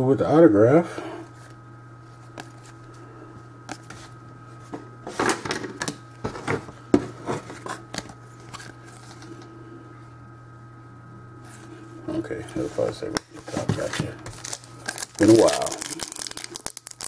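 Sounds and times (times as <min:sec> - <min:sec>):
cards flipped and shuffled: 0:07.7 - 0:09.2, 0:13.2 - 0:17.0.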